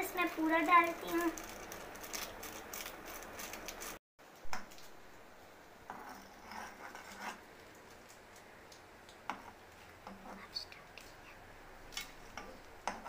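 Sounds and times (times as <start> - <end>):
packet crinkling: 0.4 - 4.0
light scrapes and clicks in a pot: 5.9 - 11.2.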